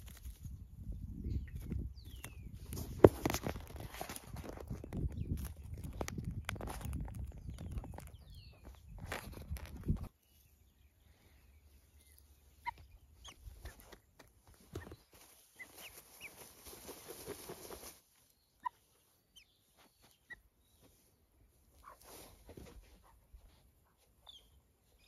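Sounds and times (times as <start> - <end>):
guineafowl chick chirping: 1.2 - 2.6, 11.4 - 21.0
hand stroking feathers: 13.4 - 18.0.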